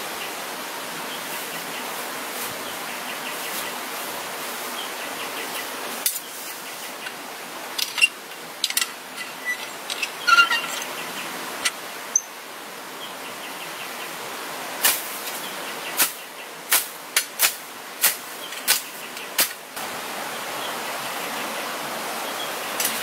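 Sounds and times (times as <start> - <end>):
steady hiss: 0.0 - 23.0
hand shovel slapping into leaves: 14.8 - 15.4, 16.0 - 19.6.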